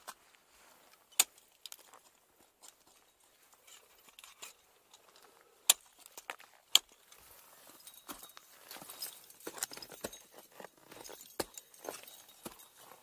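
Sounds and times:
metallic clinks of climbing hardware: 2.6s - 13.0s.

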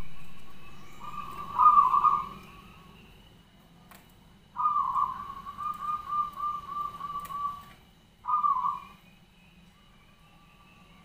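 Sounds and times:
dove cooing: 0.0s - 3.0s, 4.6s - 9.0s.

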